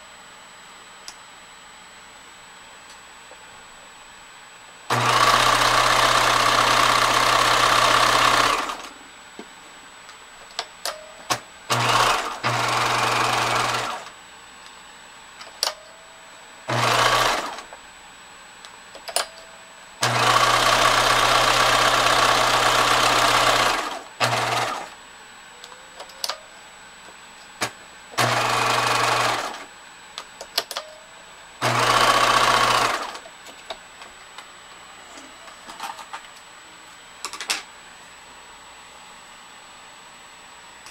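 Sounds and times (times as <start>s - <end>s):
sewing machine stitching: 4.9s - 8.9s, 11.7s - 14.1s, 16.7s - 17.7s, 20.0s - 24.9s, 28.2s - 29.7s, 31.6s - 33.2s.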